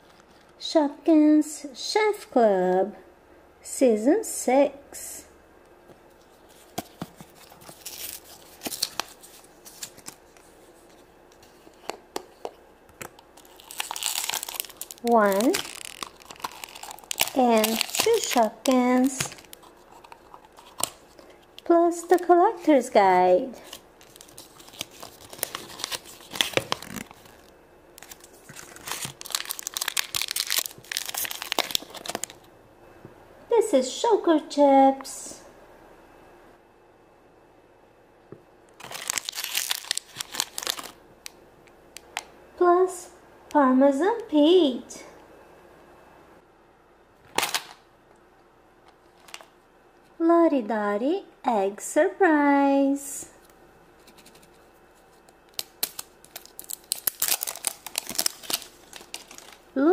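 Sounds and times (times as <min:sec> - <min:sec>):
packaging rustling and crinkling: 0:06.2 - 0:22.3, 0:23.6 - 0:32.5, 0:38.8 - 0:41.4, 0:48.9 - 0:49.5, 0:54.0 - 0:59.8
paper rustling: 0:06.3 - 0:12.0, 0:23.6 - 0:32.3.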